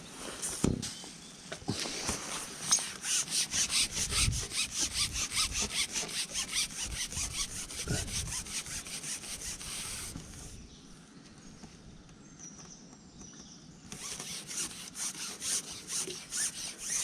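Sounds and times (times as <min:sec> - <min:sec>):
rapid rasping scrape: 0:02.2 - 0:10.6, 0:13.9 - 0:17.0.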